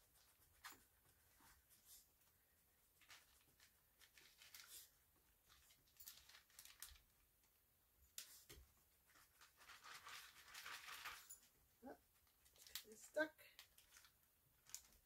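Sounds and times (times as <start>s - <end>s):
plastic bag rustling and crinkling: 2.8s - 7.3s, 8.1s - 15.0s.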